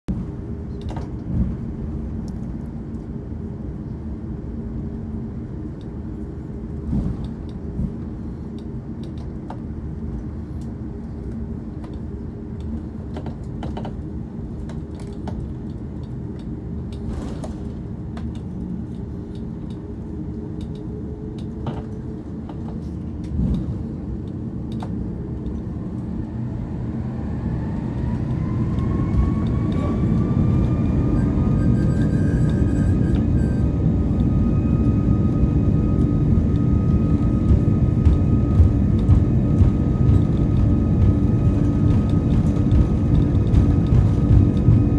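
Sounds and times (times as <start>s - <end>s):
jet engines humming: 0.1s - 44.9s
rising engine whine: 0.1s - 44.9s.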